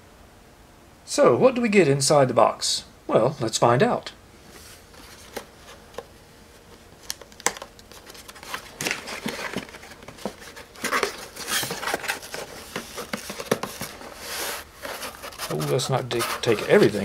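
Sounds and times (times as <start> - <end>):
cardboard tray sliding out: 10.8 - 17.0.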